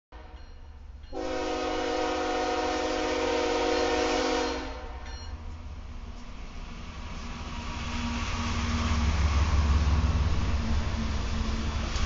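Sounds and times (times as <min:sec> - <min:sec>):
locomotive low rumble: 0:00.2 - 0:12.0
locomotive air horn: 0:01.1 - 0:05.1.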